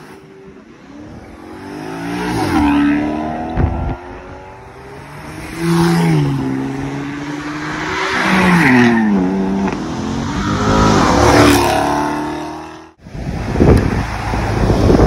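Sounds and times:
cars accelerating past: 0.0s - 13.0s.

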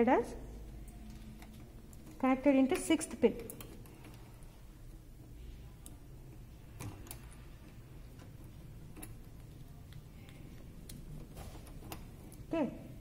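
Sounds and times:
patch cords clicking into sockets: 0.9s - 5.0s, 6.6s - 12.5s.

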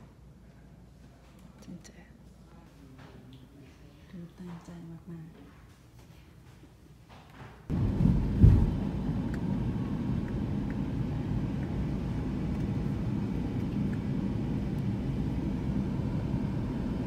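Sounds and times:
car road and wind noise: 7.7s - 11.0s.

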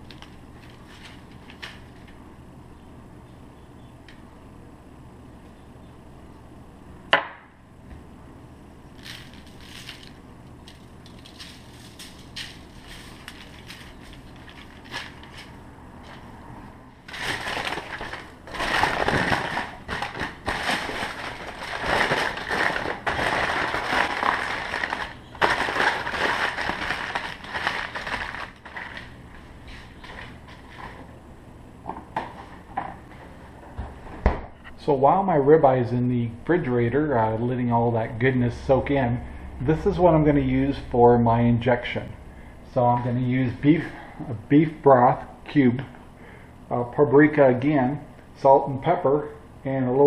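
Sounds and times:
aluminium foil crinkling: 0.0s - 2.2s, 8.9s - 16.3s, 17.0s - 31.0s.

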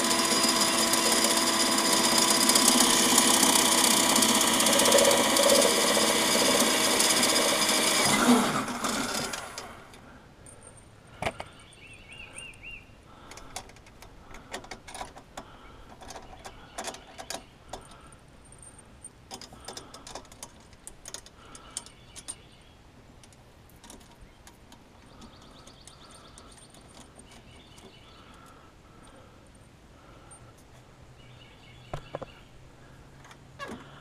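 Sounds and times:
birds chirping: 10.1s - 20.3s, 21.1s - 23.0s, 24.0s - 33.0s.

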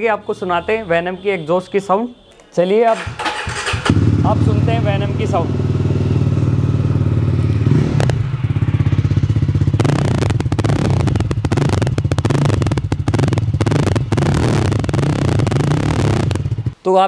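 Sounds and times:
crackly exhaust: 2.3s - 16.8s
motorcycle engine idling: 3.0s - 16.8s.

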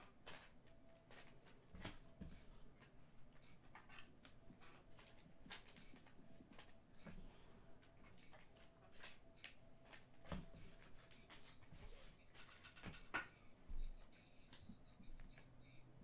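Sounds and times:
trading cards being handled: 0.0s - 15.6s.

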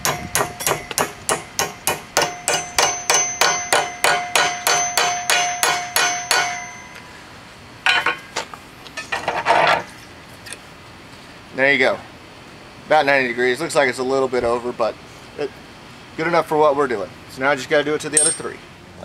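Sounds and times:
hammer striking metal: 0.0s - 7.0s, 18.2s - 18.6s.

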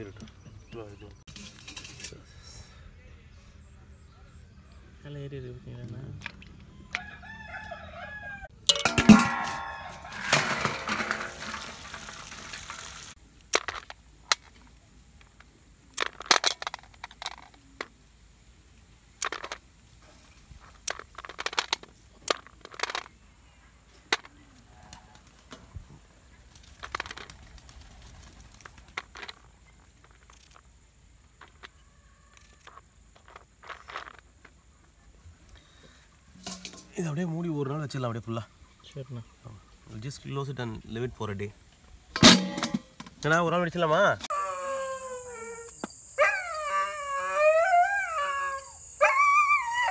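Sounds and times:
rooster crowing: 6.7s - 8.5s, 9.1s - 10.5s
items set down on steel plate: 8.7s - 13.9s, 36.4s - 37.0s.

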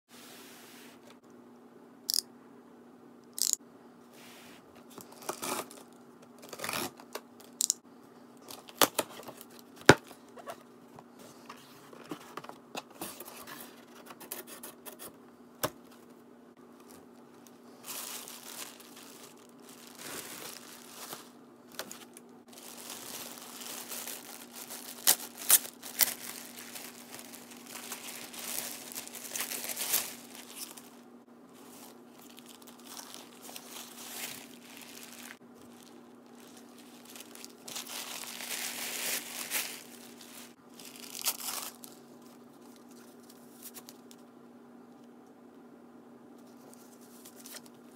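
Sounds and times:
packing tape being cut: 5.1s - 5.8s, 6.4s - 7.1s
plastic bag crinkling: 16.7s - 31.0s, 31.6s - 42.8s.

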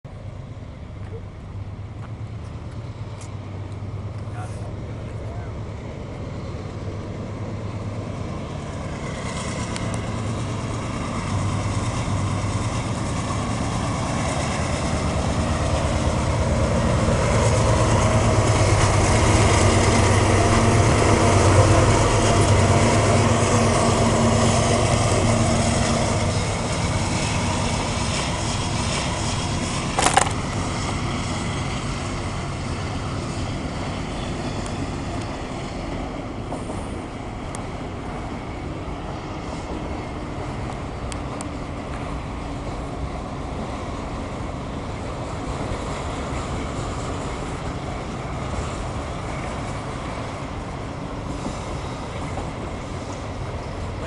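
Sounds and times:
diesel locomotive engine drone: 0.0s - 54.0s
rolling rumble of freight cars: 0.0s - 54.0s.

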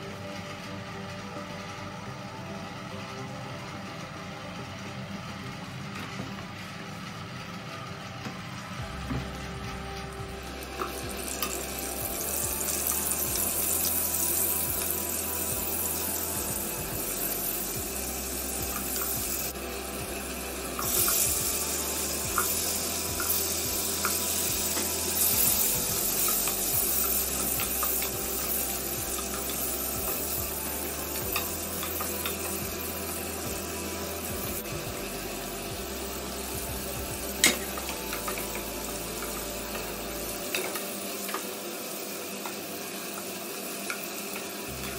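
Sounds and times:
vegetables sizzling in hot oil: 10.4s - 44.9s.

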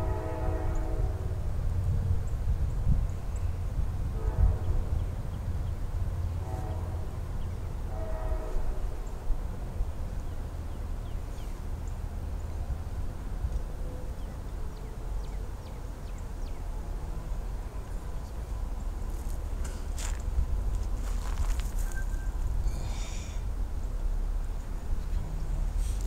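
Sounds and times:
distant train horn blasts: 0.0s - 1.6s, 4.0s - 5.3s, 6.2s - 9.4s
steady low rumble: 11.8s - 26.0s.

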